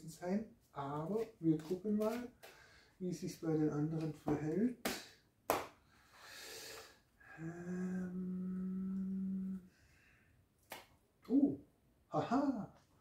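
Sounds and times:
man inhaling through nose: 5.9 - 7.9
man humming low: 7.2 - 9.8.

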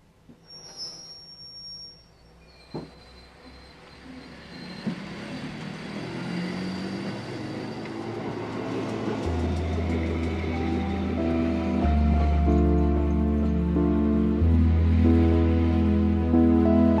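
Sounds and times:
train carriages rumbling: 2.3 - 17.0
deep steady tone: 9.2 - 17.0.

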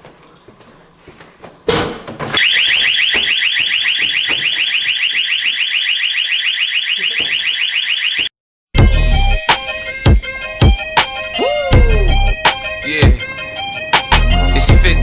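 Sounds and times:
door alarm warbling tone: 2.4 - 8.3.

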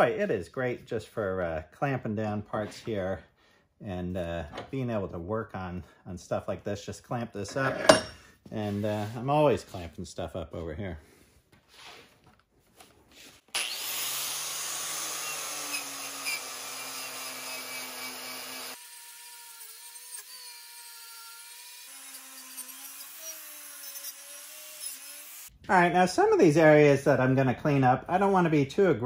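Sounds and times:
wire brush grinder scrubbing metal: 13.6 - 25.5.

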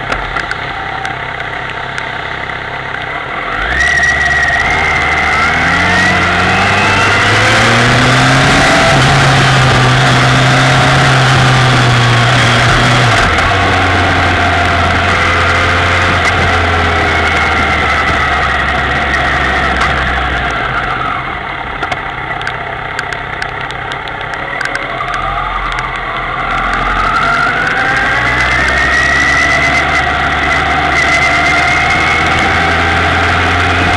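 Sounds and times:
motorcycle engine revving: 0.0 - 33.9.

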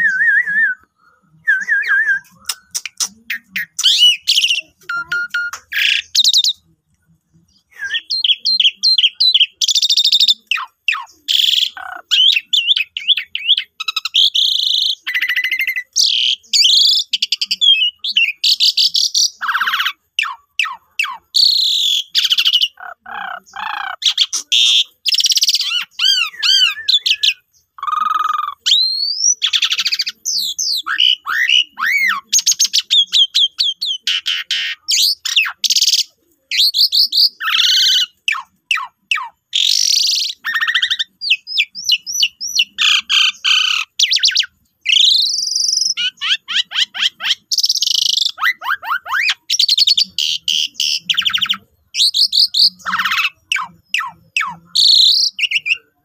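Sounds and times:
starling singing varied song: 1.3 - 6.7.

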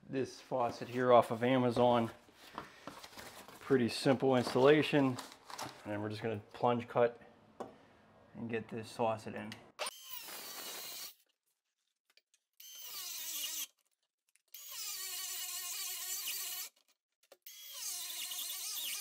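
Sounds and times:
core drill whining through stone: 9.8 - 11.2, 12.6 - 13.7, 14.5 - 16.8, 17.4 - 19.0.

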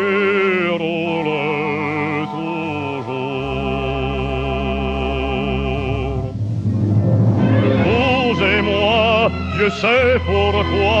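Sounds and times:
man singing with vibrato: 0.0 - 6.4, 7.4 - 11.0
sustained instrumental accompaniment: 1.2 - 11.0
deep bass note: 5.3 - 10.5.

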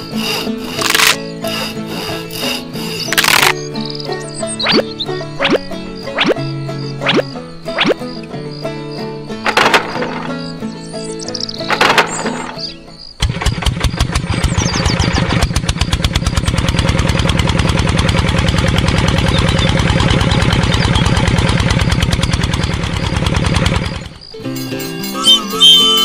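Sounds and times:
small tractor engine chugging: 0.0 - 4.6, 11.4 - 26.0.

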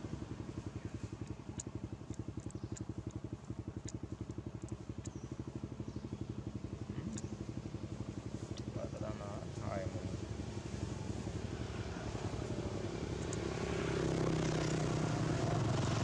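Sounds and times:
small engine idling: 0.0 - 16.0
faint sharp ticks: 1.2 - 3.2, 3.8 - 5.2.

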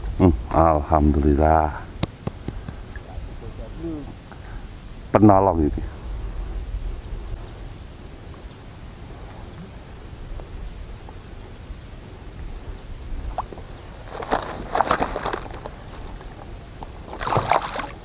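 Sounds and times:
steady low rumble: 0.0 - 14.8
water lapping and sloshing: 17.0 - 18.0
splashes and clatter: 17.1 - 18.0.

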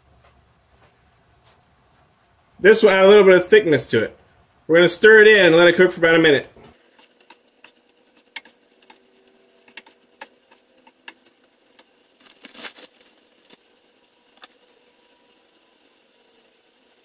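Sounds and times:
spatula scraping frying pan: 6.7 - 11.9.

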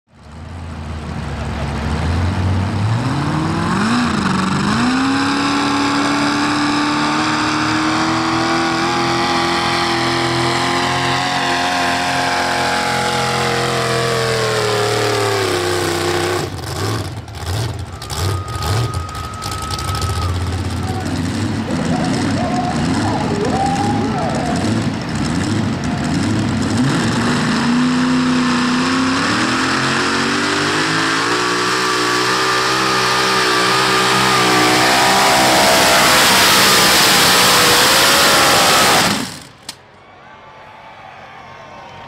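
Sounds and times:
tractor engine revving: 0.4 - 39.8.

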